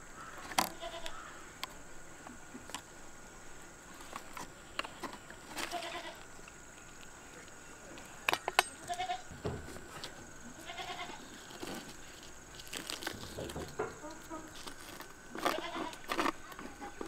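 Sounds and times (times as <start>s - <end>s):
goat bleating: 0.7s - 1.1s, 5.6s - 6.2s, 8.8s - 9.3s, 10.6s - 11.3s, 15.3s - 16.1s
wire clicking and rustling: 11.4s - 17.0s.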